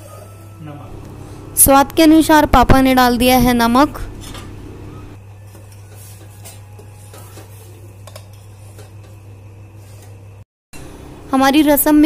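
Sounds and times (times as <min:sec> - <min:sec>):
steady low hum: 0:00.7 - 0:05.4
metal spoon stirring in saucepan: 0:05.5 - 0:09.2.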